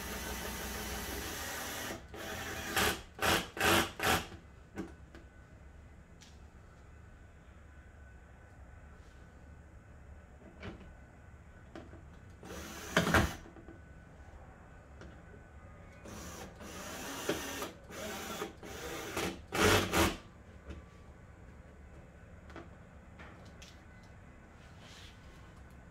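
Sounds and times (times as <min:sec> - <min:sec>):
power drill bursts: 0:00.0 - 0:04.3, 0:12.4 - 0:13.4, 0:16.1 - 0:20.2.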